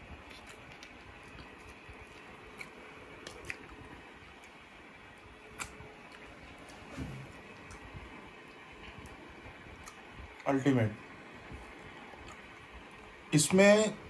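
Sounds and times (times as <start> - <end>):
person chewing with mouth clicks: 0.1 - 4.6, 5.4 - 6.4, 9.8 - 10.5, 12.2 - 12.5
mouth smacks: 0.2 - 3.9, 5.5 - 6.3, 9.8 - 10.5.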